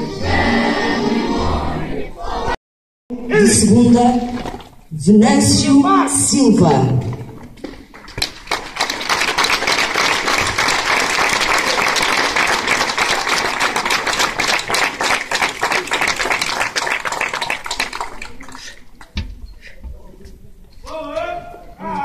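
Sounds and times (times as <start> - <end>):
crowd applauding: 7.8 - 19.1.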